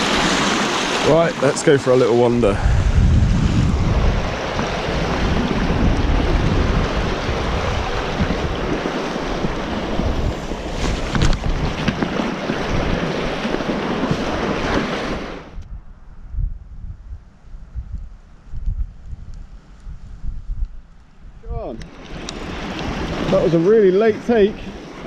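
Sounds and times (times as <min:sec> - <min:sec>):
surf breaking around rocks: 0:00.0 - 0:15.5, 0:21.5 - 0:25.0
wind buffeting microphone: 0:00.0 - 0:25.0.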